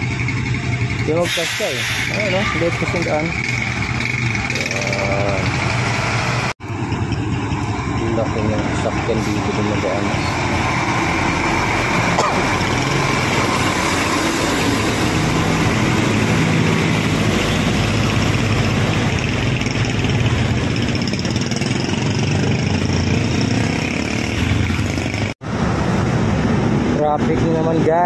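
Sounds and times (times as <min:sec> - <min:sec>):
truck engine droning: 0:00.0 - 0:28.0
motorcycle engines passing: 0:02.1 - 0:28.0.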